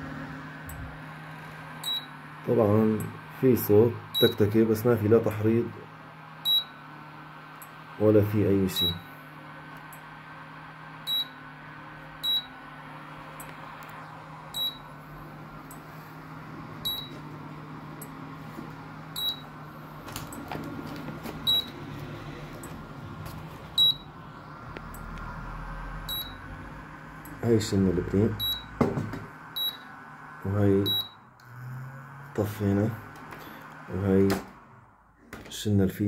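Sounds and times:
steady low hum: 0:00.0 - 0:36.0
induction cooker ticking: 0:01.8 - 0:02.2.

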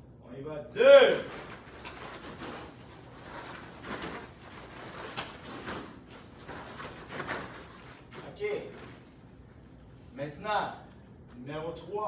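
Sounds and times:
running feet on foam mats: 0:01.3 - 0:09.2.

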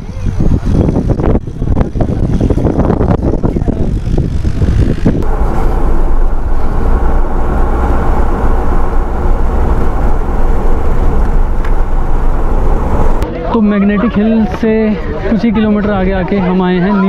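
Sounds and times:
car driving on highway: 0:02.9 - 0:13.3.

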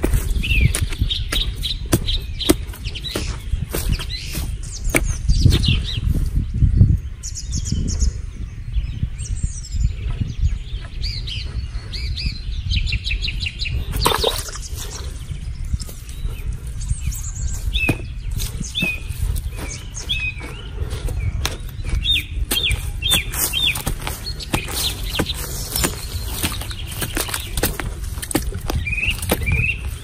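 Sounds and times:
stick digging into dry soil: 0:00.0 - 0:05.7, 0:17.1 - 0:30.0
small birds chirping: 0:00.0 - 0:30.0.

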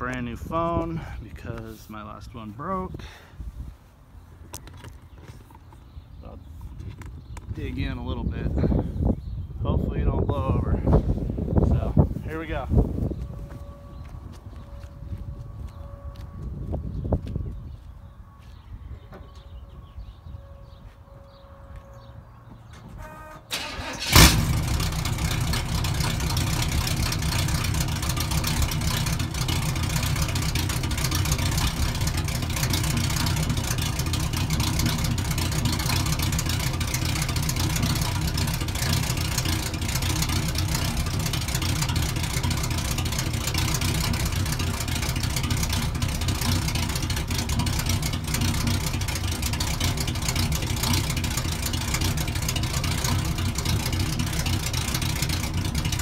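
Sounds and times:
engine idling: 0:23.0 - 0:56.0
engine cranking: 0:23.5 - 0:56.0.

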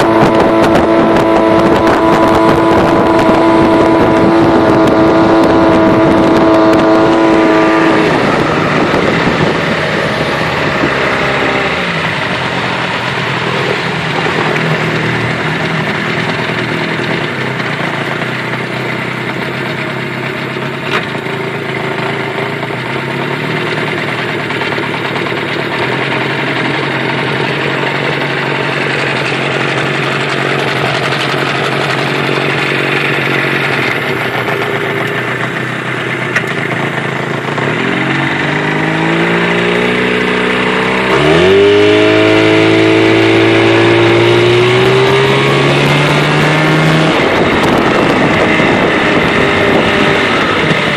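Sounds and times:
water rushing behind boat: 0:00.0 - 0:19.3, 0:37.0 - 0:50.9
outboard motor running: 0:00.0 - 0:50.9.

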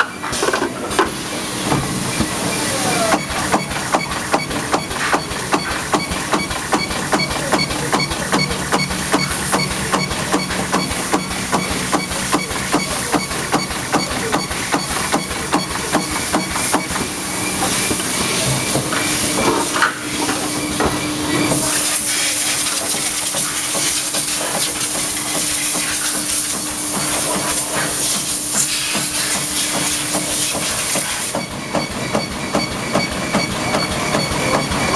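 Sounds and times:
welding machine rapid clicking: 0:03.1 - 0:17.2, 0:21.7 - 0:34.9.

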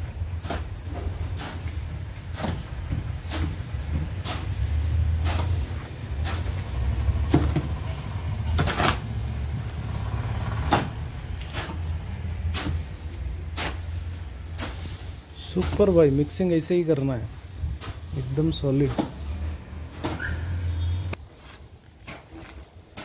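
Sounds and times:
steady low rumble: 0:00.0 - 0:16.4
shovel scraping sand and cement: 0:00.1 - 0:23.0.

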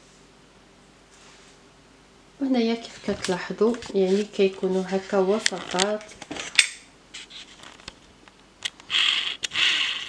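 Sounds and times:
low steady hum: 0:00.0 - 0:10.0
soft rustle: 0:01.0 - 0:01.7, 0:02.8 - 0:06.2.

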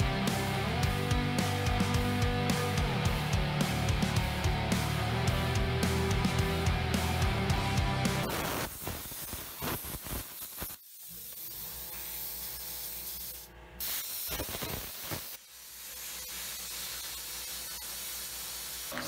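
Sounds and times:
plasma cutter hissing: 0:08.2 - 0:19.0.

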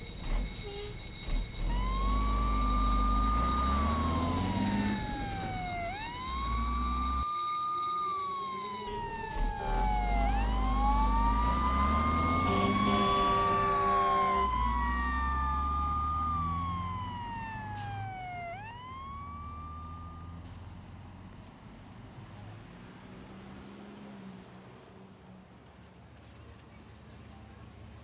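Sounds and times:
fire engine siren wailing: 0:00.0 - 0:20.6
truck engine rumble: 0:00.0 - 0:28.0.

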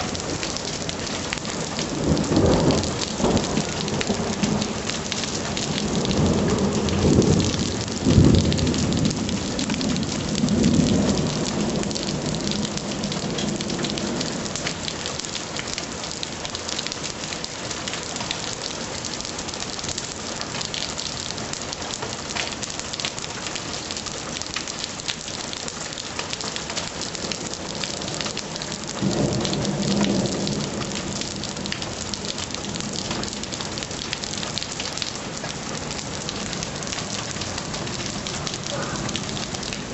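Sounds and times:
heavy rain pouring: 0:00.0 - 0:39.9
low thunder rumbles: 0:01.7 - 0:14.9, 0:27.2 - 0:34.1, 0:36.1 - 0:39.9.

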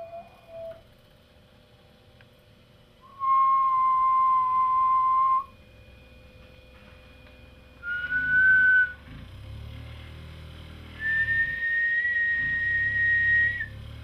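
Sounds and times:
whistled notes: 0:00.0 - 0:00.8, 0:03.0 - 0:05.6, 0:07.8 - 0:09.0, 0:11.0 - 0:13.8
vibration motor humming: 0:00.0 - 0:14.0.

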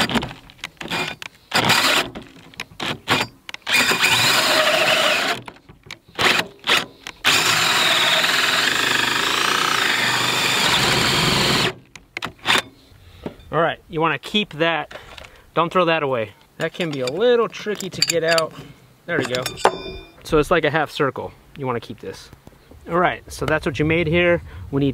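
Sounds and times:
drill hole saw cutting wood: 0:00.9 - 0:02.1, 0:03.0 - 0:05.4, 0:06.2 - 0:11.8.

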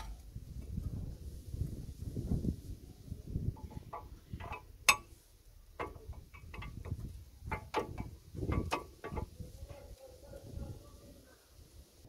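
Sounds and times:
brake caliper and pads clicking: 0:05.8 - 0:09.4.

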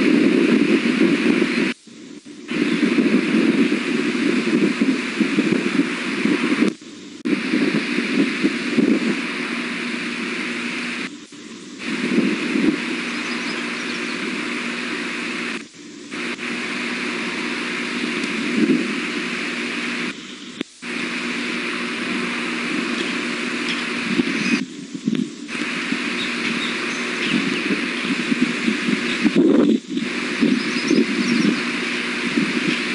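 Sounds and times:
wind buffeting microphone: 0:00.0 - 0:11.1, 0:11.8 - 0:20.1, 0:20.8 - 0:32.9
microphone hiss and low hum: 0:00.0 - 0:32.9.

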